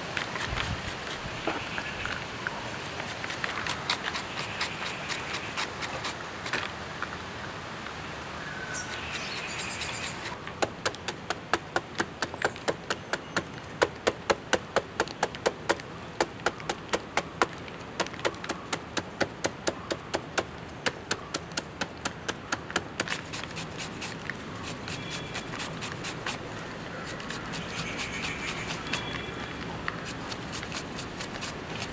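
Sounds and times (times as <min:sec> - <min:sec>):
knife chopping jackfruit: 0:10.2 - 0:29.2.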